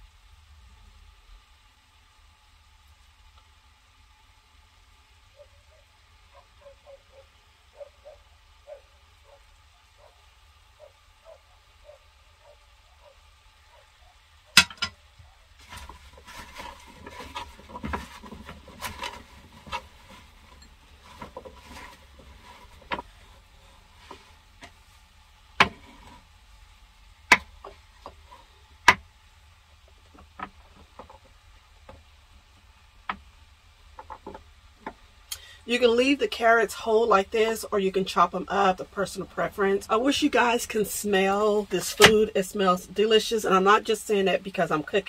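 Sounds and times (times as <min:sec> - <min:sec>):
clatter and rustling of food: 0:14.6 - 0:26.4, 0:29.8 - 0:32.2, 0:33.9 - 0:35.1.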